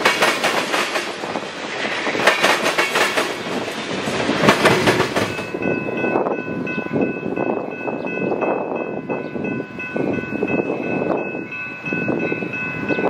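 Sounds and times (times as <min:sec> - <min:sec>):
train wheels clacking over rail joints: 0:00.0 - 0:05.7
train rolling rumble: 0:00.0 - 0:13.0
high ringing tone: 0:05.3 - 0:13.0.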